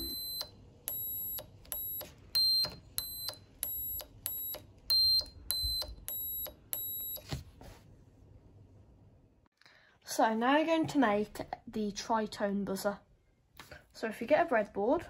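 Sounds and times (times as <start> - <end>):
high-pitched buzzer beeps: 0.0 - 7.3.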